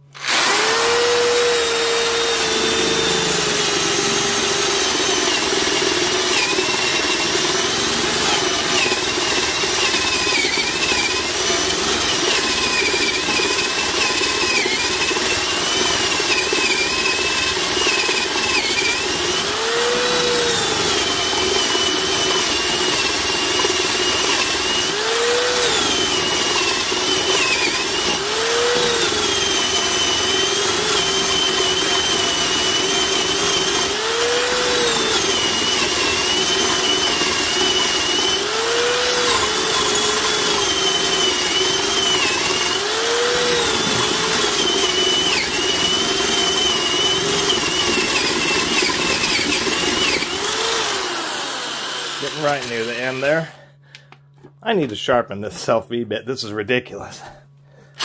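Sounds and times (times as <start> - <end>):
drill motor whine: 0.0 - 53.6
electric drill boring into wood: 0.0 - 53.6.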